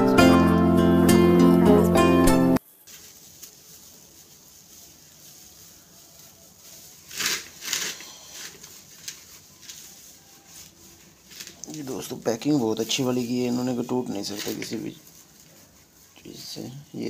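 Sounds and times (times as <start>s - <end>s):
background music: 0.0s - 2.6s
dry straw rustling: 2.5s - 17.0s.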